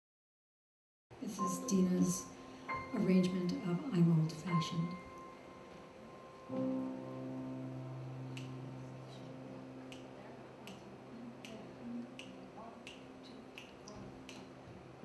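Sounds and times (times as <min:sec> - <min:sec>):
finger snaps: 0:08.3 - 0:08.8, 0:09.8 - 0:14.6.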